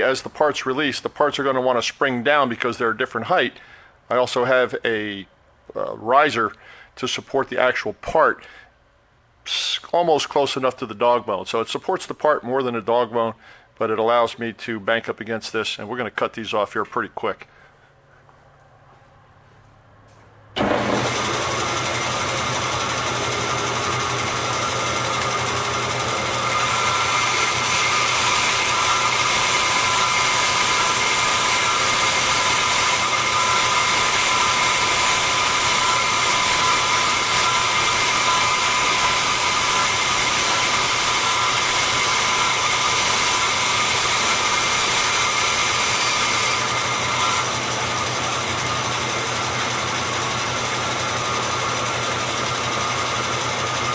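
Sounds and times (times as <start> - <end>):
bandsaw whining: 20.6 - 53.9.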